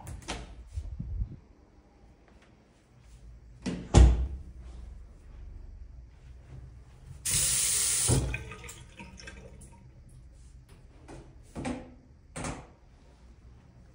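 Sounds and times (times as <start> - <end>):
water running into sink: 7.3 - 9.9.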